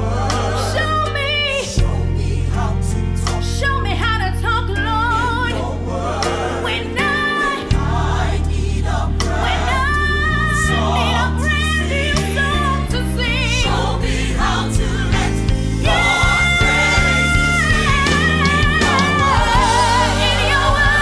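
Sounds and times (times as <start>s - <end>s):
gospel choir singing: 0.0s - 21.0s
held bass notes: 0.0s - 21.0s
band playing: 13.6s - 21.0s.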